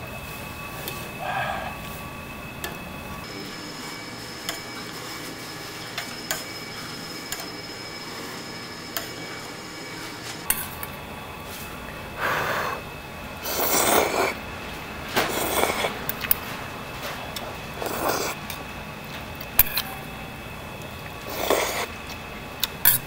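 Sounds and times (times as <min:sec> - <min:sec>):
blowing and slurping food: 0:13.4 - 0:14.4, 0:15.2 - 0:16.0, 0:17.8 - 0:18.4, 0:21.2 - 0:21.9.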